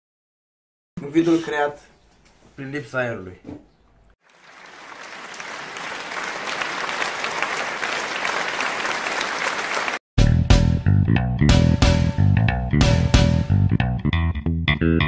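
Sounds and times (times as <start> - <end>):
crowd applause: 4.2 - 10.0
guitar music with heavy bass: 10.2 - 15.0.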